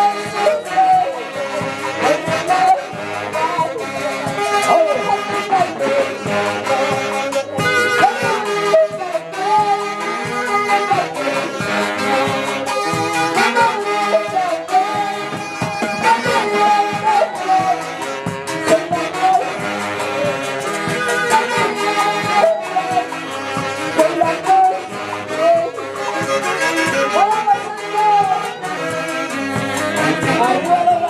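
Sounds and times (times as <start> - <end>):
saxophones playing melody: 0.0 - 31.0
steady drum beat: 24.9 - 31.0.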